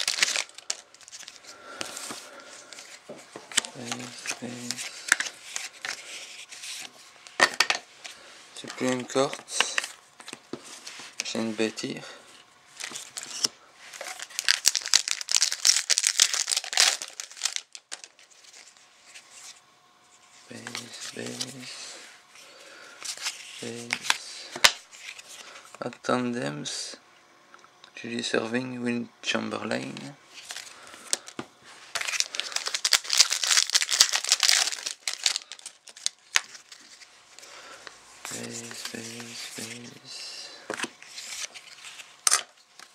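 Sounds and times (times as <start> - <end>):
foil wrapper crinkling: 0.0 - 6.9, 12.8 - 18.8, 30.4 - 40.0.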